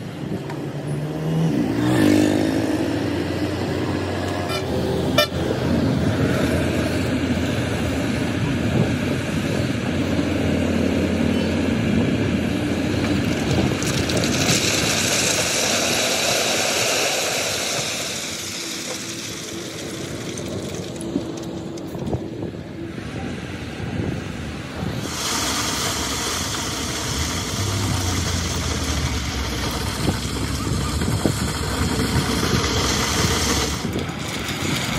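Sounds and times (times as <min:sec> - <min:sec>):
diesel truck engine revving: 0:00.2 - 0:34.9
load pouring with hissing rush: 0:12.8 - 0:22.0, 0:25.0 - 0:34.9.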